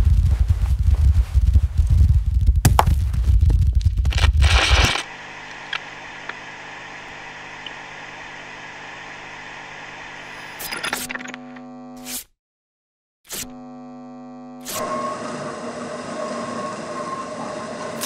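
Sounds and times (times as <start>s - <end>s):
low rumble with crackling: 0.0s - 8.2s
hum of held tones: 4.4s - 12.0s, 13.5s - 15.2s.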